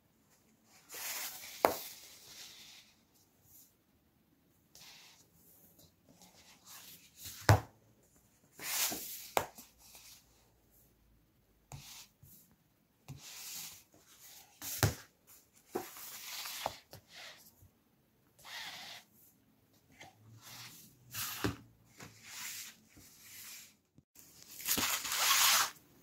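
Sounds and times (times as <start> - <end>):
book pages turning: 24.2 - 25.8.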